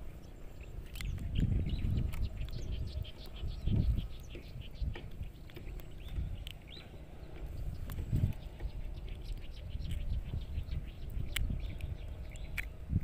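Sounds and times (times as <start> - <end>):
bird chirps: 0.0 - 13.0
low microphone rumble: 0.0 - 13.0.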